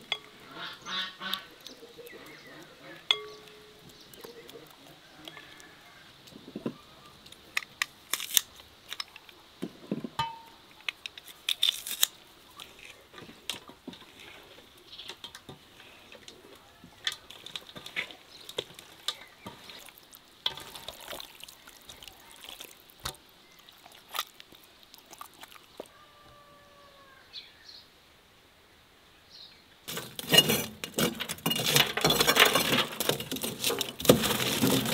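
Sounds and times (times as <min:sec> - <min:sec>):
wet squelches: 0:17.3 - 0:26.0.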